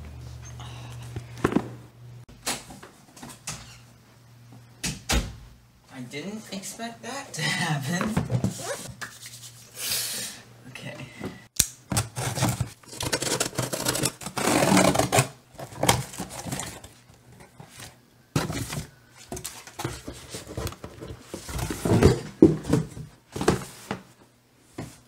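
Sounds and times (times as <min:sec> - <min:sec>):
cardboard scraping and tearing: 0:12.1 - 0:17.0
knife slitting packing tape: 0:13.0 - 0:15.4.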